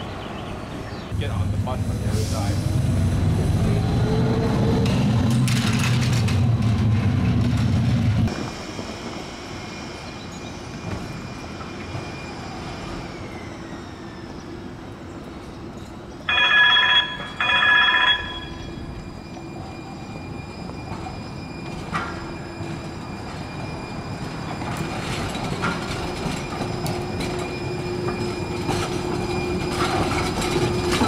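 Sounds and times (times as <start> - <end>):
streetcar rail rumble: 0.0 - 31.0
high wheel squeal: 8.9 - 15.1, 16.3 - 31.0.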